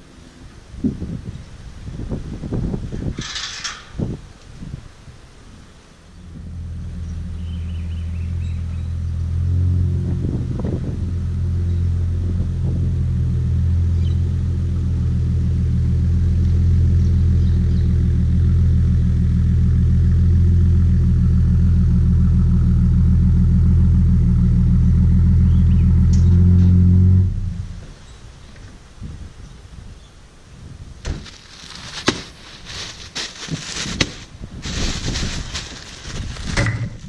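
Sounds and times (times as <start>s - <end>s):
car engine running: 6.2s - 26.7s.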